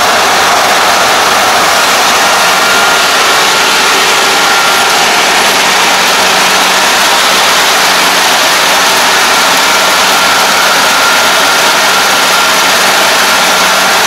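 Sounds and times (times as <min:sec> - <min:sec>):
combine harvester running: 0:00.0 - 0:14.0.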